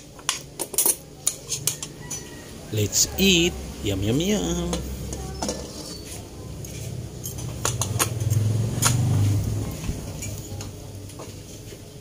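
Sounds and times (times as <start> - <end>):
cutlery clinking on a plate: 0.2 - 2.4, 7.2 - 9.1.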